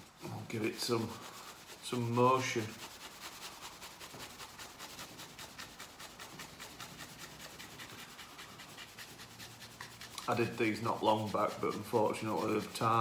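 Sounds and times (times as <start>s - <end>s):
cloth rubbing on metal: 0.0s - 13.0s.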